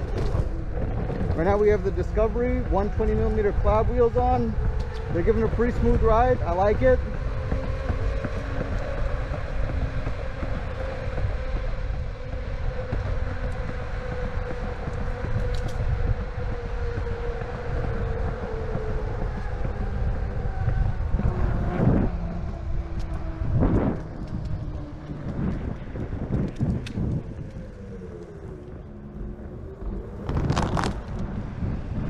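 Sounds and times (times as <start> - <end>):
electric motor whine: 0.0 - 32.0
skateboard rolling on pavement: 0.0 - 32.0
wind buffeting microphone: 0.0 - 32.0.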